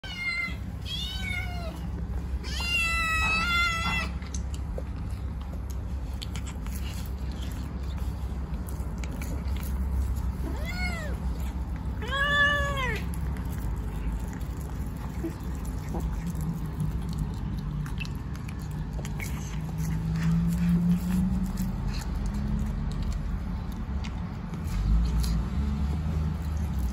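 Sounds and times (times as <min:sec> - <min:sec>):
kittens meowing: 0:00.0 - 0:04.3, 0:10.4 - 0:11.4, 0:12.0 - 0:13.2.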